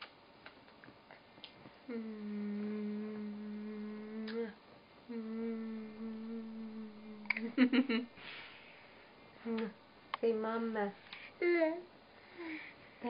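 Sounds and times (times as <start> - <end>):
person humming low note: 1.9 - 7.6, 9.4 - 9.8.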